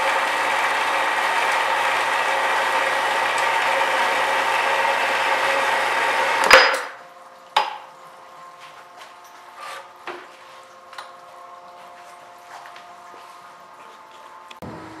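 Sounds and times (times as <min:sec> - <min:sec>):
bandsaw cutting steel: 0:00.0 - 0:06.9.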